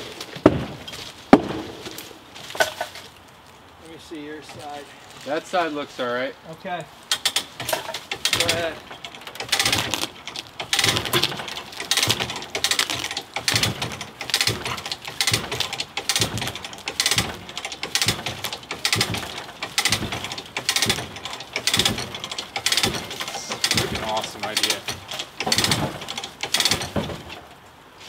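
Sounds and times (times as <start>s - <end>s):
hand ratchet clicking: 7.1s - 27.1s.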